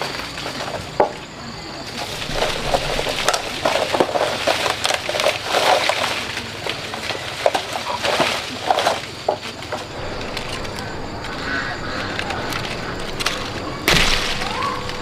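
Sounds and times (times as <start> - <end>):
leaves and branches rustling: 0.0 - 15.0
branches cracking and snapping: 1.9 - 15.0.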